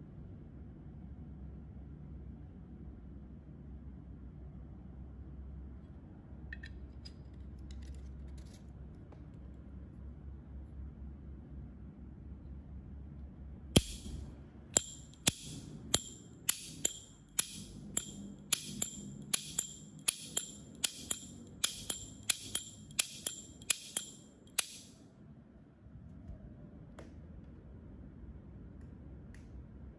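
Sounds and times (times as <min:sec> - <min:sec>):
metal lighter lid clicking: 0:13.8 - 0:14.2, 0:14.8 - 0:24.9.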